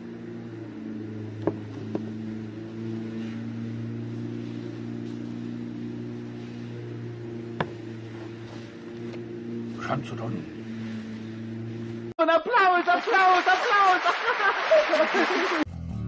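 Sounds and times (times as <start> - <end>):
lawn mower engine running: 0.0 - 12.1.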